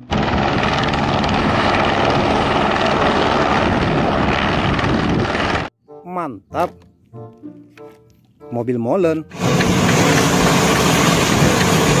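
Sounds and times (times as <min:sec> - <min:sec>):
helicopter rotor chop: 0:00.0 - 0:05.7, 0:09.3 - 0:12.0.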